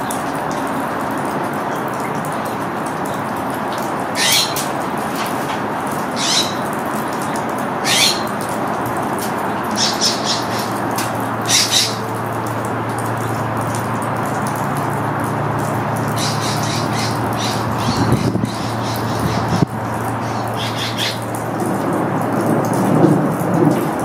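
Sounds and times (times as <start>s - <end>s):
hummingbird chip calls: 4.2s - 4.7s, 6.1s - 6.7s, 7.8s - 8.4s, 9.6s - 12.2s, 16.0s - 21.3s.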